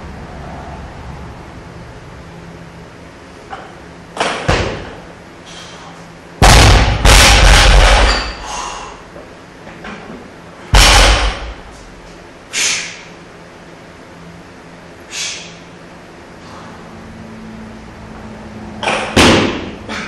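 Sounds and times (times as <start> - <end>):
heavy thud: 6.4 - 8.2, 10.7 - 11.8.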